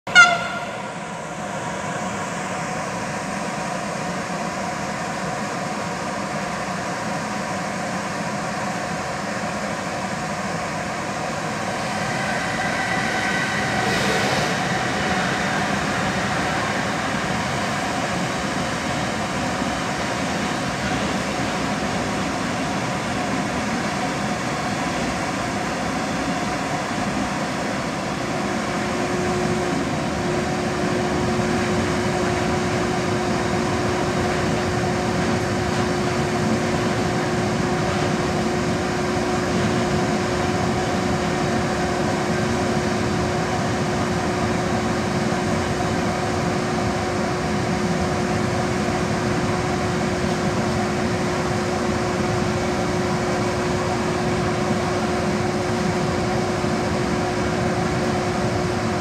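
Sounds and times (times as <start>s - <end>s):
short loud tone: 0.1s - 1.3s
freight train rumbling past: 0.1s - 59.0s
faint high squeal: 11.5s - 18.6s.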